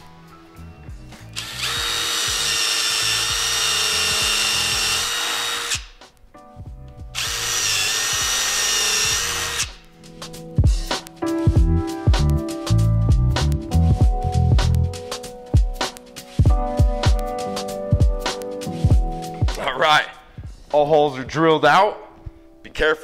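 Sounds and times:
cordless drill boring into wood: 1.3s - 6.0s, 7.2s - 9.8s.

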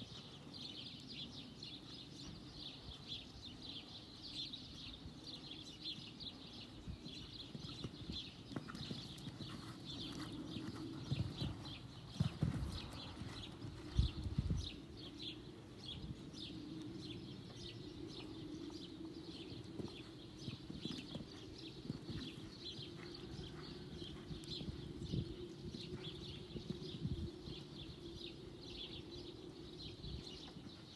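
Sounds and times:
birds chirping: 0.1s - 30.9s
horse hooves thudding on sand: 7.0s - 14.8s, 19.5s - 27.6s.

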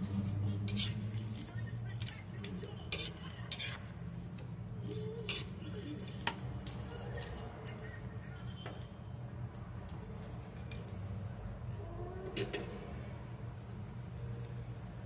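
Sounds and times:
spatula scraping a wok: 0.0s - 4.1s, 5.3s - 5.6s.

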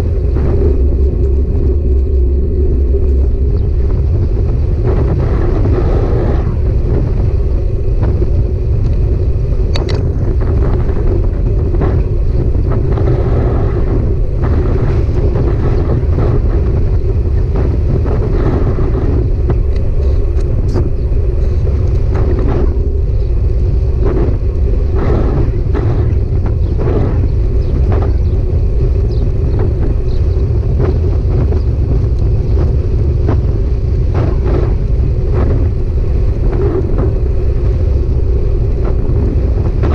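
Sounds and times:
road noise: 0.0s - 39.9s
wind on microphone: 0.0s - 39.9s
bike clicks and rattles: 9.7s - 10.2s.

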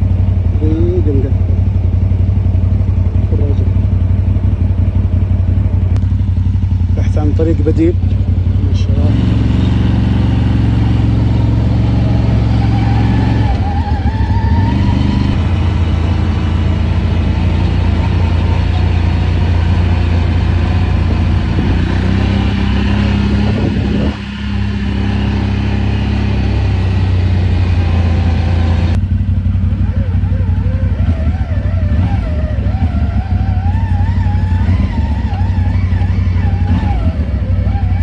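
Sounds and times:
motorcycle engine running: 0.0s - 38.0s
wind and tyre rushing noise: 19.8s - 29.0s.

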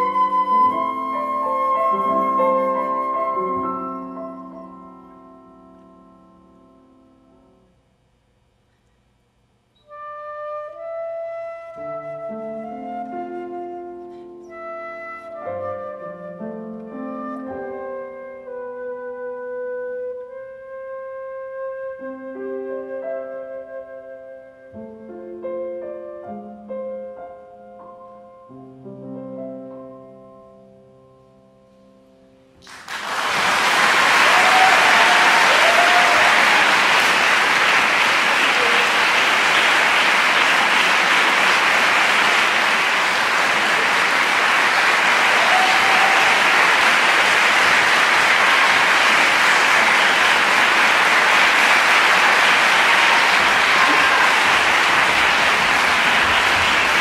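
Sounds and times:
flute and piano playing: 0.0s - 7.0s, 9.8s - 31.3s, 38.5s - 39.6s
audience applause: 32.6s - 57.0s.

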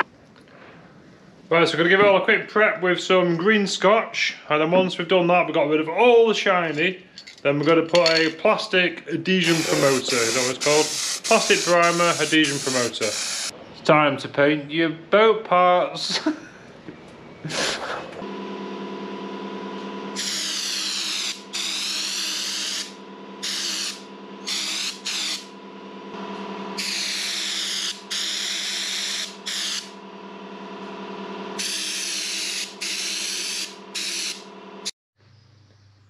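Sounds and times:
air spray gun hissing: 9.4s - 13.5s, 20.2s - 25.5s, 26.8s - 30.0s, 31.6s - 34.5s
motor humming: 9.4s - 13.5s, 18.2s - 34.9s.

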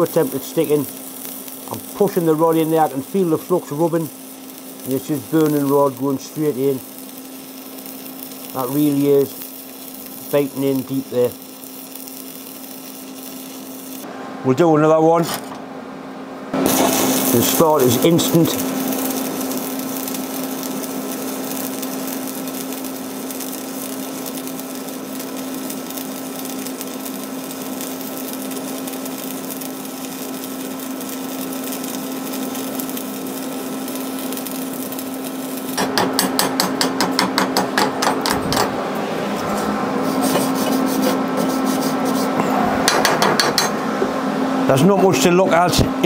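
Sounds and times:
rhythmic scraping of weld: 0.0s - 14.1s, 16.6s - 38.8s, 39.4s - 43.8s
welding arc sizzling hiss: 0.0s - 14.1s, 16.5s - 46.0s.

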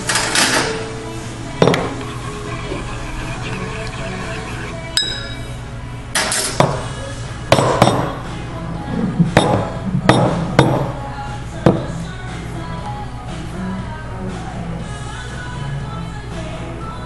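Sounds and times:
background music: 0.0s - 17.0s
pitcher and cup knocking on counter: 1.6s - 2.0s, 7.5s - 8.1s, 9.4s - 10.9s
spoon tapping cup rim: 3.4s - 5.5s.

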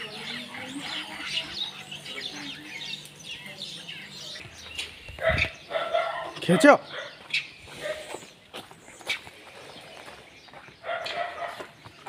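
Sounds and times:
faint low wavering calls: 0.0s - 5.9s
small birds chirping: 0.0s - 12.0s.

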